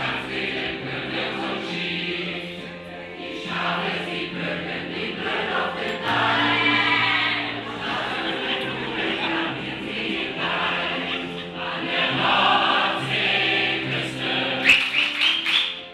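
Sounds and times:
crowd singing together: 0:00.0 - 0:15.8.

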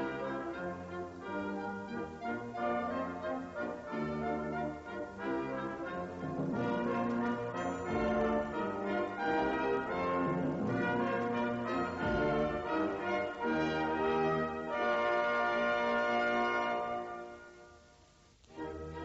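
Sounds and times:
orchestral music with brass: 0:00.0 - 0:19.0
ringing bell tones: 0:07.5 - 0:08.7.

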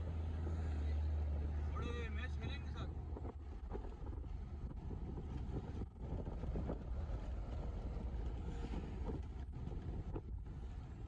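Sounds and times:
vehicle rumble from inside: 0:00.0 - 0:11.0
wind buffeting microphone: 0:02.4 - 0:11.0.

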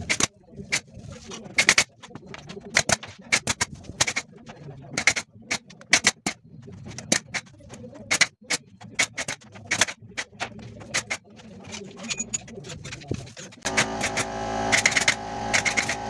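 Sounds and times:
nail gun firing into wood: 0:13.7 - 0:16.0.

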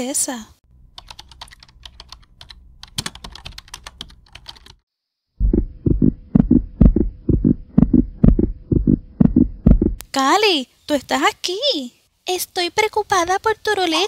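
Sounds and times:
faint steady hum: 0:00.7 - 0:04.7, 0:05.4 - 0:10.1
keyboard typing clicks: 0:01.0 - 0:04.8
heartbeat through stethoscope: 0:05.4 - 0:10.0.

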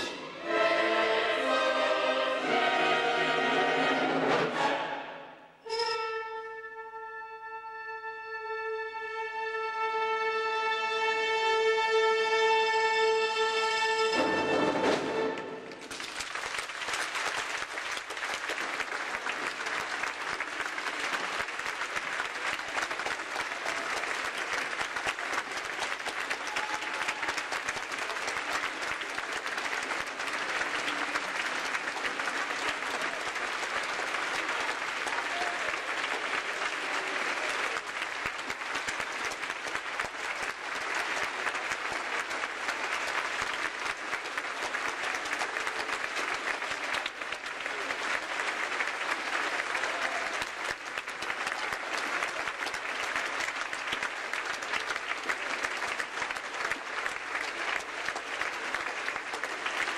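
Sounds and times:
large audience applauding: 0:14.1 - 0:59.9.

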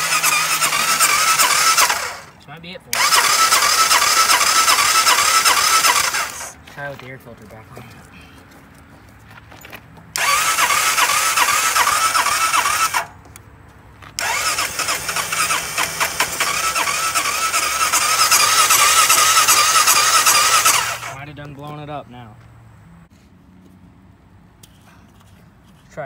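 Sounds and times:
electric starter cranking engine: 0:00.0 - 0:06.6, 0:10.2 - 0:13.2, 0:14.2 - 0:21.3.

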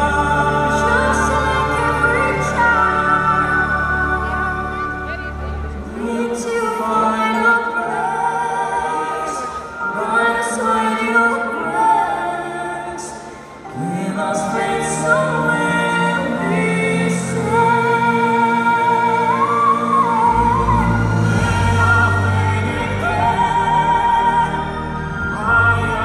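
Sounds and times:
music with singing voice: 0:00.0 - 0:26.0.

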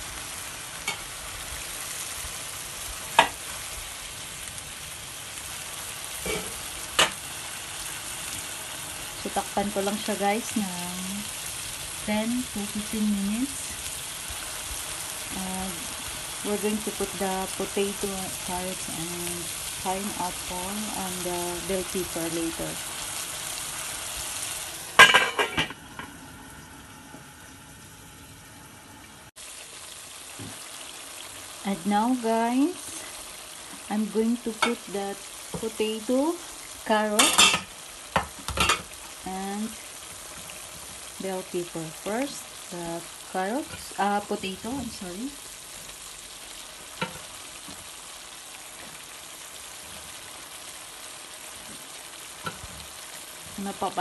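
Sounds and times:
chicken sizzling in a pot: 0:00.0 - 0:54.0
metal pot lid clattering: 0:25.0 - 0:25.8.

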